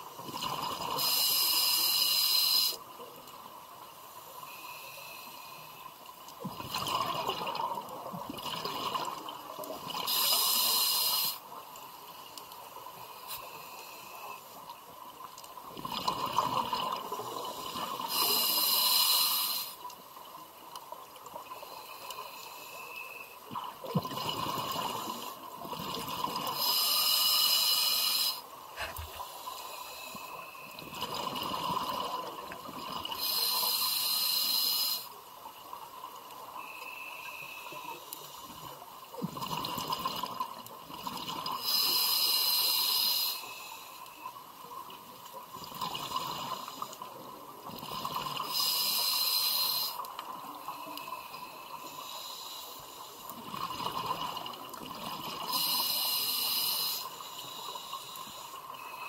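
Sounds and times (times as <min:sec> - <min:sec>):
exhaled bubbles hissing: 0:00.2 - 0:02.8, 0:06.6 - 0:11.5, 0:21.6 - 0:35.2, 0:36.6 - 0:44.2, 0:45.5 - 0:59.0
diver inhaling through regulator: 0:18.1 - 0:19.8, 0:26.5 - 0:30.7, 0:41.6 - 0:44.0, 0:48.4 - 0:50.0, 0:55.4 - 0:59.0.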